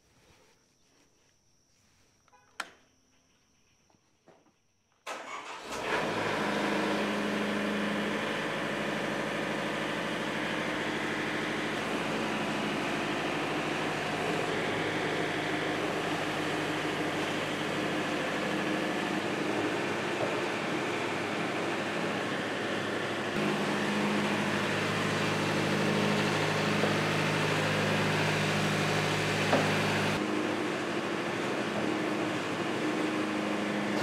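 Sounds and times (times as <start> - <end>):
sawmill engine starting and running: 5.1 - 34.0.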